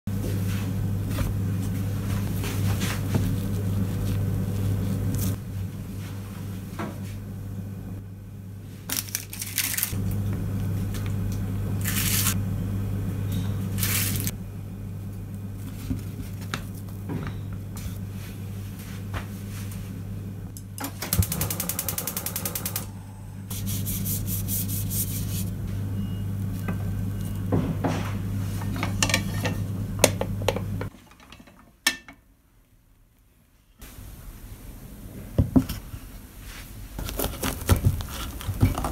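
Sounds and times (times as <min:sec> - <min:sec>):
steady low hum: 0:00.1 - 0:30.9.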